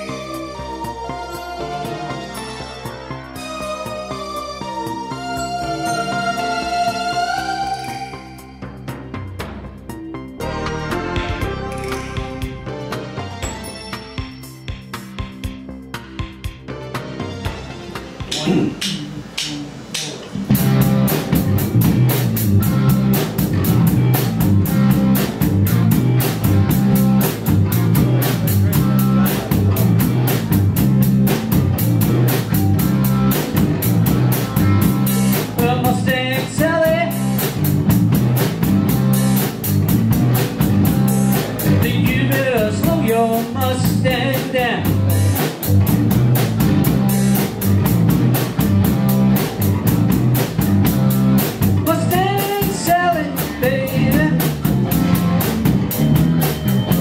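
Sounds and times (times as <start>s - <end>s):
rhythm and blues band playing: 0.0s - 57.0s
electric guitar lead lines: 18.2s - 57.0s.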